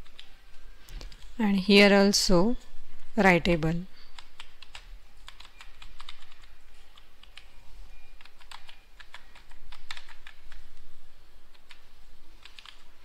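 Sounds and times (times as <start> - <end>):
computer keyboard typing: 0.0 - 0.4, 4.1 - 10.7, 11.5 - 12.9.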